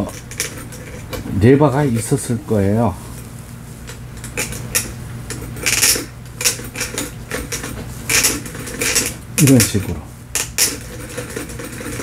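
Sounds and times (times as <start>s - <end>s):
metal clicks and scrapes: 0.0s - 1.2s, 3.9s - 12.0s
steady low hum: 0.0s - 12.0s.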